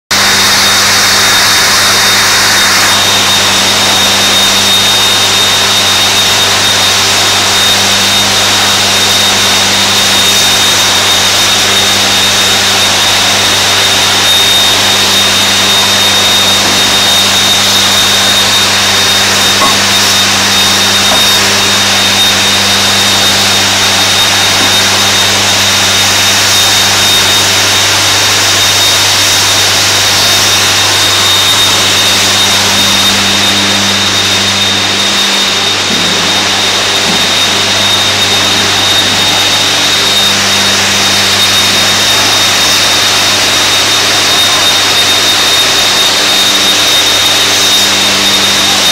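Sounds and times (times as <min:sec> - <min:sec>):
furnace roaring: 0:00.1 - 0:48.9
high whine: 0:00.1 - 0:48.9
low hum: 0:14.0 - 0:42.4.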